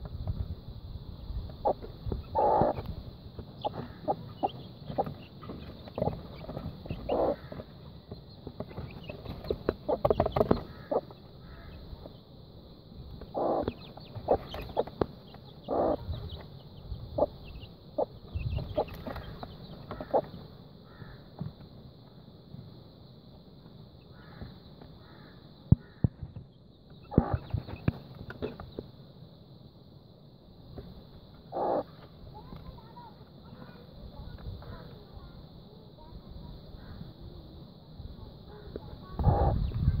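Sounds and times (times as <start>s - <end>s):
hen clucking: 1.5s - 12.2s, 13.1s - 21.2s, 26.9s - 28.7s, 31.5s - 32.0s, 39.1s - 40.0s
chicks pecking plastic tray: 1.6s - 11.4s, 13.1s - 20.5s, 26.2s - 28.9s.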